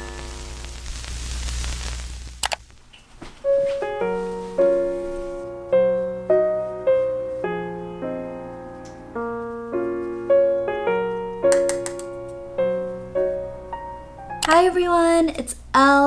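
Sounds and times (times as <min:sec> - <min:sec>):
soft piano chords: 0:03.4 - 0:14.9.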